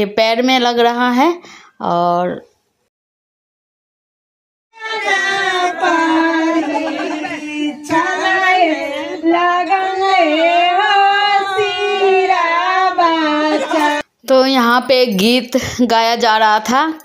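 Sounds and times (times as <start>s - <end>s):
women singing folk song: 4.8s - 14.1s.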